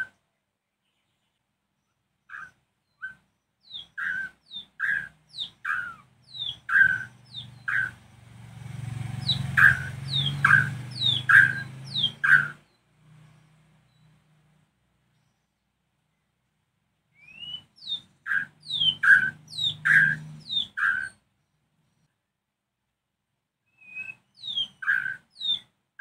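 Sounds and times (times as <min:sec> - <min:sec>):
bird calling sharp repeated notes: 0:00.0 - 0:00.2, 0:02.3 - 0:08.2, 0:09.1 - 0:14.2, 0:17.1 - 0:21.3, 0:23.7 - 0:25.8.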